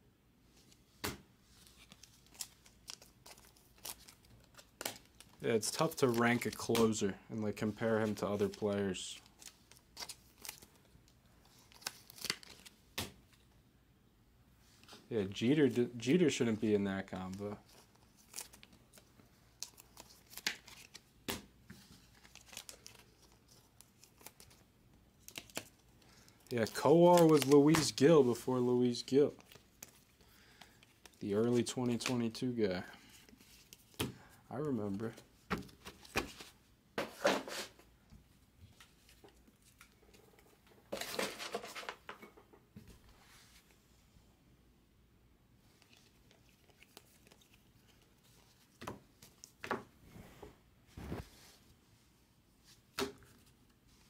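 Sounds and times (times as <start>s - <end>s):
cards clicking and plastic crinkling: 0.6s - 13.4s, 15.6s - 37.8s, 38.7s - 42.5s, 45.7s - 49.9s.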